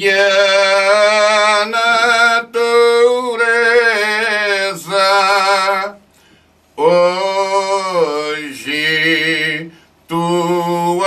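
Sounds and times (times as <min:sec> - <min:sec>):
men's choir singing unaccompanied: 0:06.8 - 0:11.0.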